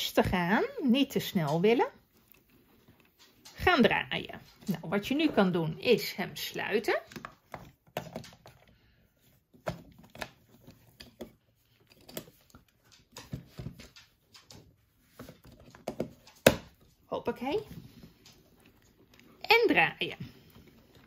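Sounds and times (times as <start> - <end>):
plastic clicks and knocks: 7.1 - 8.8.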